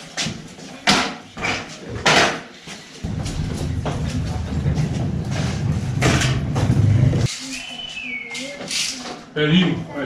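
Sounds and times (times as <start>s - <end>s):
steady low hum: 3.0s - 7.3s.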